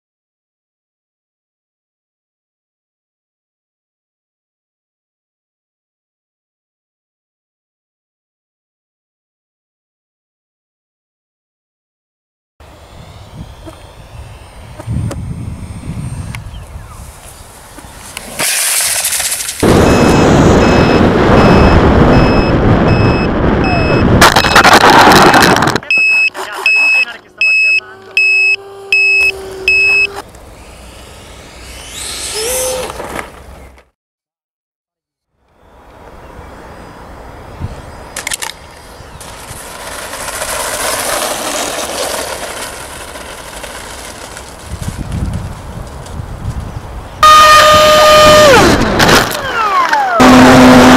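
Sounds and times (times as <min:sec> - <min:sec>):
model jet engine whoosh: 0:12.6 - 0:21.6, 0:28.1 - 0:33.8, 0:38.2 - 0:46.7
rumbling wind noise: 0:12.8 - 0:18.0, 0:19.6 - 0:25.9, 0:39.0 - 0:49.2
high repeating beep: 0:19.8 - 0:24.6, 0:25.8 - 0:30.1.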